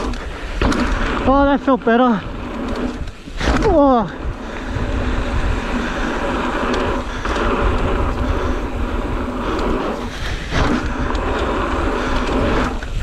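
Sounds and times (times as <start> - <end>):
bike clicks and knocks: 0.0 - 1.4, 2.4 - 4.0, 6.1 - 13.0
bike tyres rolling over dirt: 0.0 - 13.0
wind buffeting microphone: 0.0 - 13.0.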